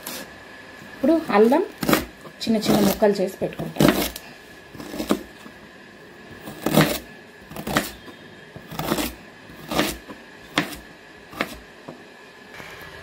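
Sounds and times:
knife chopping on plastic board: 1.8 - 3.0, 3.6 - 4.2, 4.8 - 5.4, 6.4 - 12.0.

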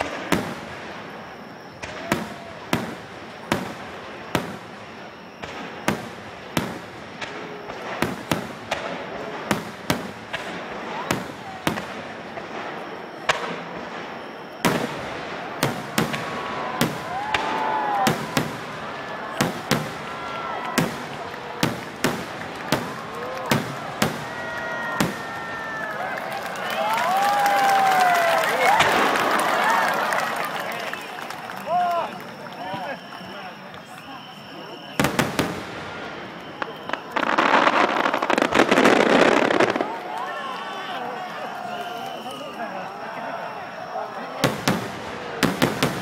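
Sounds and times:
firework shells bursting: 0.0 - 31.1.

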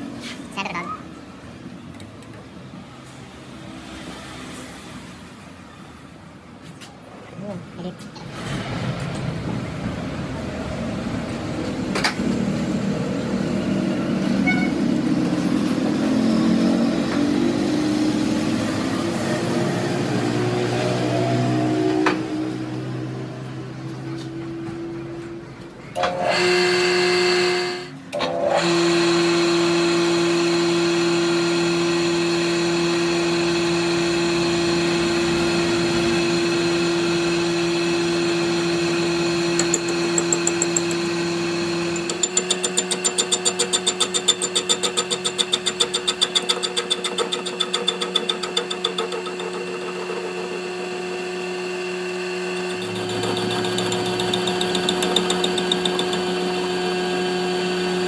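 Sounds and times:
lathe motor humming: 29.0 - 58.0
lathe tool cutting metal rattle: 39.2 - 57.0.

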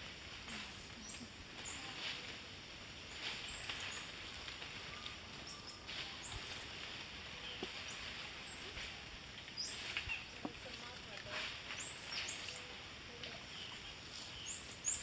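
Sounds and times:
leaf rustling: 0.0 - 15.0
monkeys chirping: 0.5 - 1.9.

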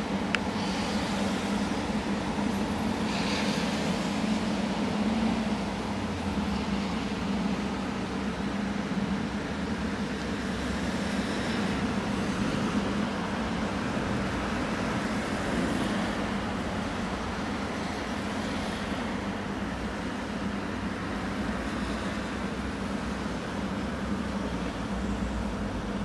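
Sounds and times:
even hiss: 0.0 - 7.5.

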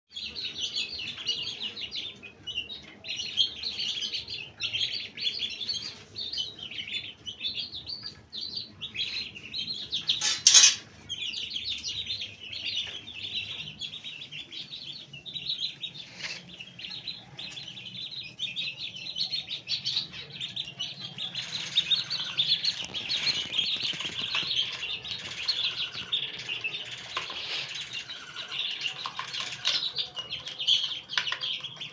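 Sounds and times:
chicks and ducklings peeping: 0.1 - 31.9.

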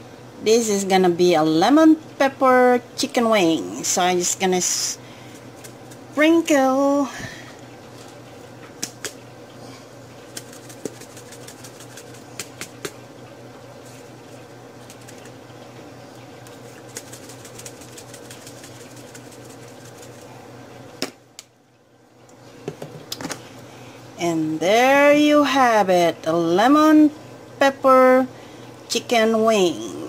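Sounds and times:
steady background hum: 0.0 - 30.0
seasoning jar shaking: 10.3 - 12.9, 14.8 - 15.3, 16.6 - 20.3.

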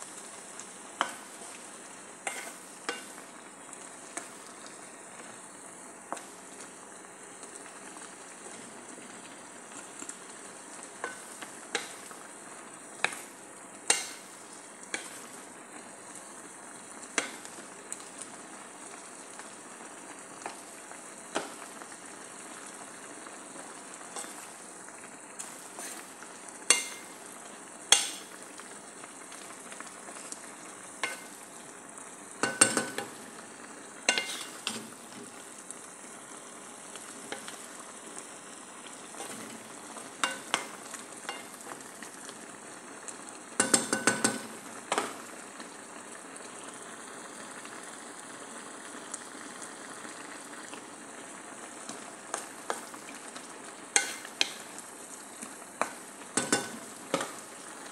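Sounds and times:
vegetables sizzling in a pan: 0.0 - 57.9
spatula knocking against pan: 43.6 - 45.1, 55.8 - 57.3.

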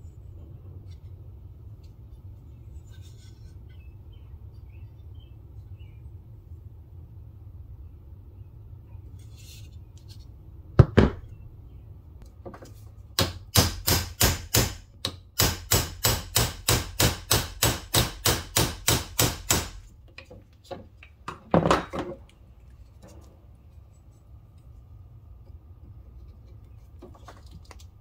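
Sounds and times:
hammer striking steel punch: 13.2 - 19.9.

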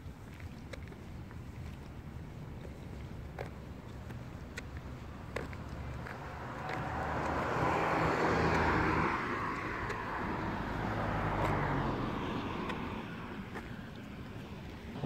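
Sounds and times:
motor vehicle passing by: 5.0 - 15.0.

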